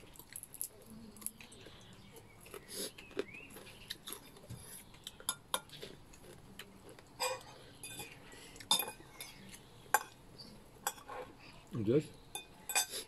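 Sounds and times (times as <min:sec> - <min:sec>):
cutlery clinking on dishes: 0:05.2 - 0:06.4, 0:07.2 - 0:10.2, 0:10.8 - 0:11.3, 0:12.3 - 0:13.0.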